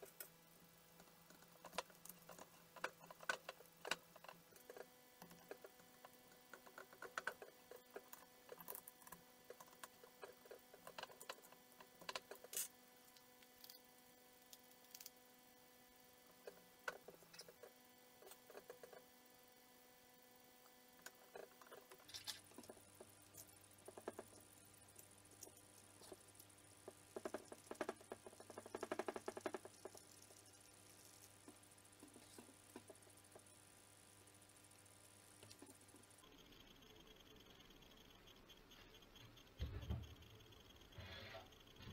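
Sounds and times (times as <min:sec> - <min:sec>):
faint steady hum: 0:00.0 - 0:41.9
metal parts clicking and tapping: 0:21.0 - 0:26.2.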